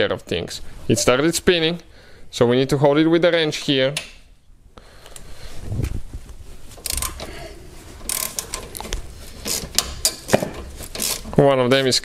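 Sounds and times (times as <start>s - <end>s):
metal-on-metal clicks: 6.8s - 7.3s, 8.0s - 11.4s
socket wrench ratchet clicking: 6.8s - 7.3s, 8.1s - 8.6s.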